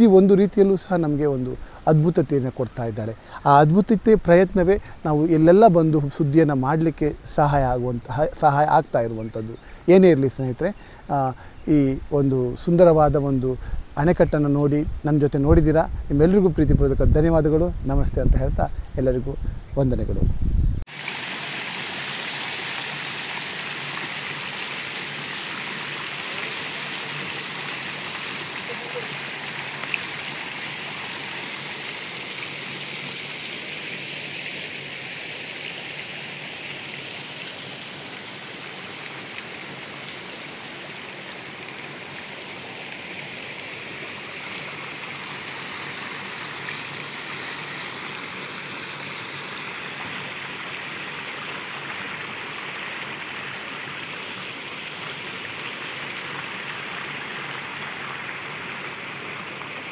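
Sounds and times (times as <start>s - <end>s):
fountain water jets splashing: 20.9s - 59.9s.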